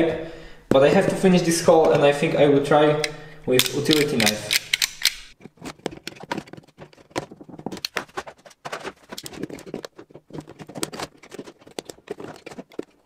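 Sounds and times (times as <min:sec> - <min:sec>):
knife blade scraping plastic: 0:03.0 - 0:13.0.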